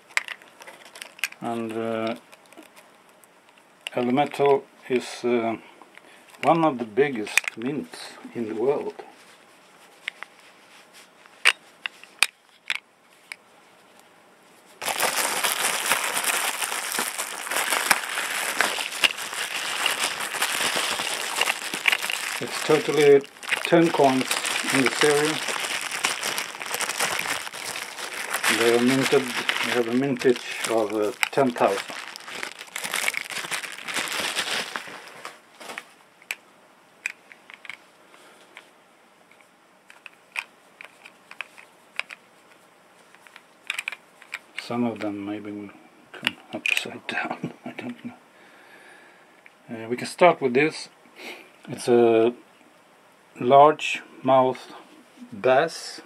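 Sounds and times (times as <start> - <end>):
dense crinkling rustle: 0.0 - 5.2, 6.2 - 36.4, 37.0 - 38.7, 39.3 - 45.1
plastic capsules clicking: 0.1 - 1.4, 14.8 - 34.8, 37.0 - 37.8, 43.2 - 44.4.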